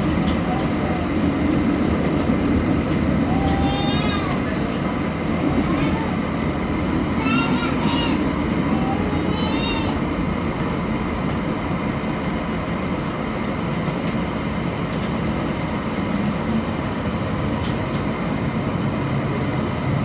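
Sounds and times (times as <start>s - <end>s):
streetcar rumbling on track: 0.0s - 20.0s.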